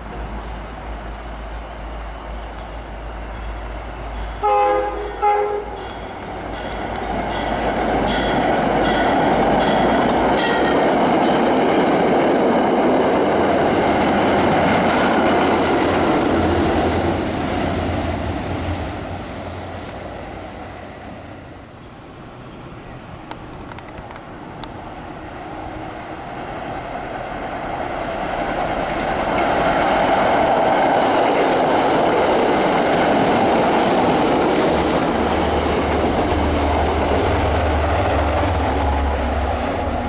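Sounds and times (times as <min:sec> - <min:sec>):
loud rail noise: 0:00.0 - 0:40.0
train wheels clacking on rails: 0:03.3 - 0:20.7, 0:27.0 - 0:40.0
train horn blasts: 0:04.4 - 0:05.9.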